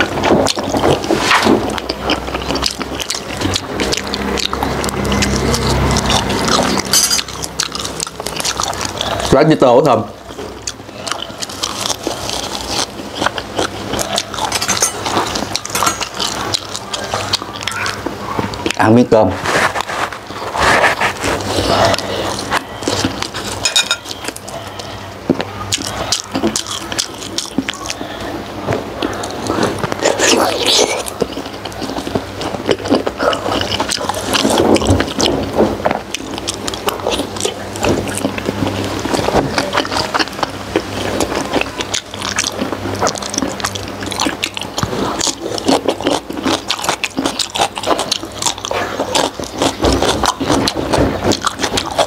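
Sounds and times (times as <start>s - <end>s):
wet chewing and mouth smacks: 0.0s - 18.8s, 19.5s - 52.0s
steady low hum: 0.0s - 52.0s.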